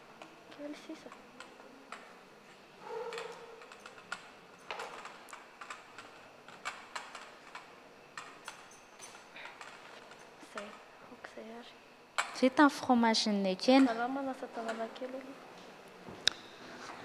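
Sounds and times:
utensils clinking against dishes: 1.4 - 10.8.

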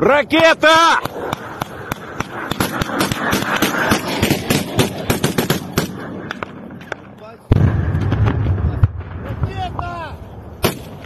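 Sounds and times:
steady rushing noise: 0.0 - 11.0
rifle shots: 1.0 - 6.6, 10.6 - 11.0.

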